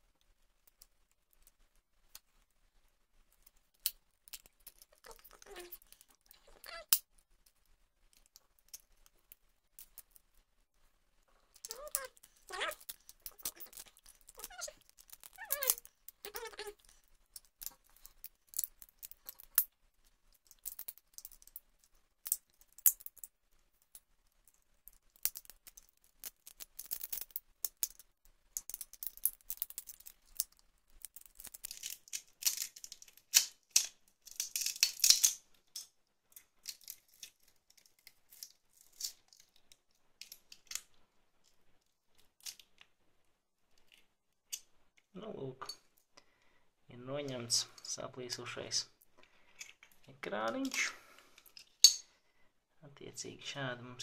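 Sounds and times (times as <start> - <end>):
glass crackling and clicking: 3.4 - 7.1, 11.5 - 39.5, 51.4 - 52.0.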